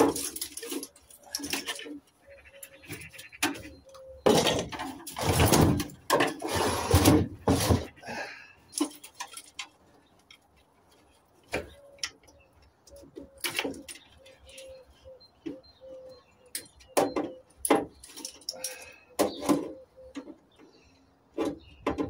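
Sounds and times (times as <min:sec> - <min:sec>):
metal casing scraping and clattering: 0:00.0 - 0:08.0, 0:08.7 - 0:11.4.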